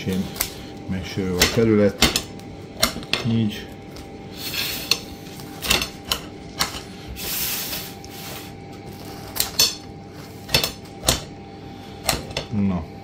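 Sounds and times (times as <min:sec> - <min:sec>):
scissors snipping pizza crust: 0:00.0 - 0:04.1, 0:08.8 - 0:09.8.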